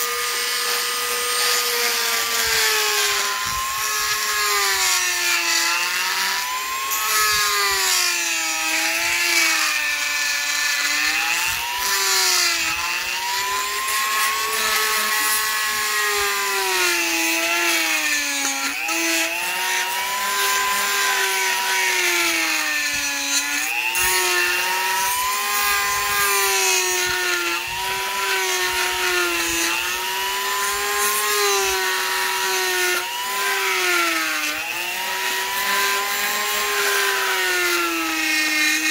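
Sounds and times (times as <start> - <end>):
rotary bit grinding plate: 0.0 - 38.9.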